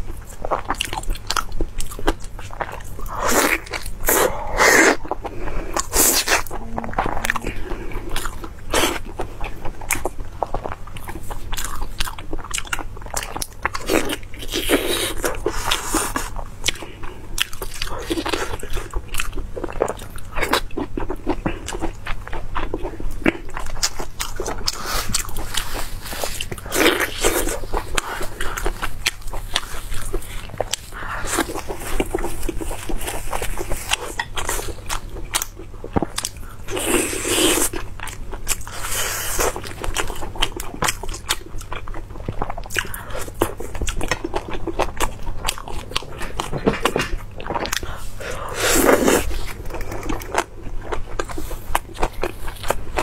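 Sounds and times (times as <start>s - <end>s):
person chewing crunchy food: 0.0s - 53.0s.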